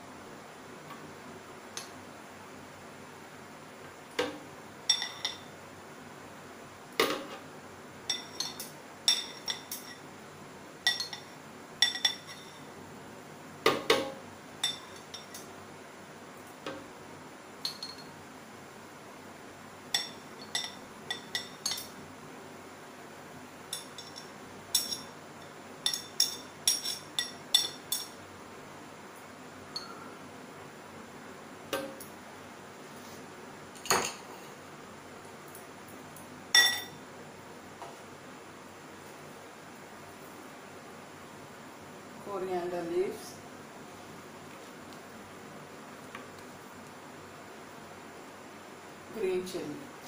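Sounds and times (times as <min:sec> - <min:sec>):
metal tongs clinking on glass: 0:04.9 - 0:05.5, 0:08.1 - 0:10.0, 0:10.8 - 0:12.6, 0:17.6 - 0:18.1, 0:19.9 - 0:21.9, 0:23.7 - 0:28.2, 0:36.6 - 0:37.0.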